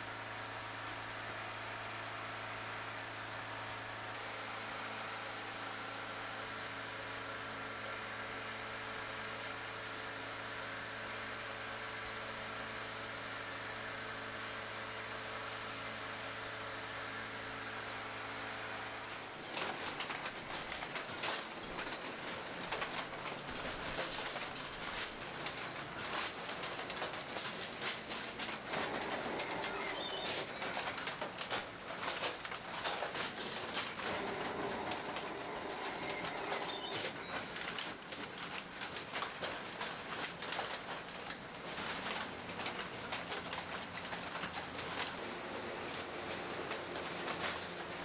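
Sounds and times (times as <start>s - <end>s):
machine squealing tone: 29.4s - 30.6s.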